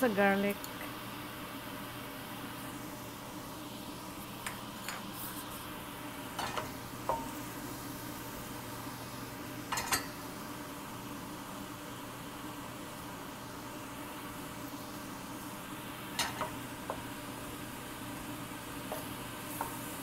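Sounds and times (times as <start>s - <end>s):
meat and garlic sizzling in pan: 0.0s - 20.0s
utensil clinking against pan: 9.7s - 10.1s.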